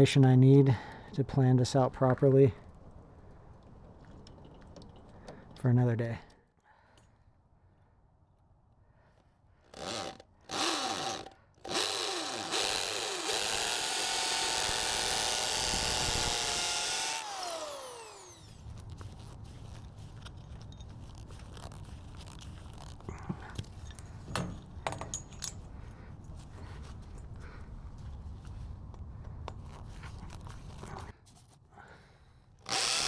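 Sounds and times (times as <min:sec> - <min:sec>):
cordless drill whining: 0:09.7 - 0:18.6, 0:32.6 - 0:33.0.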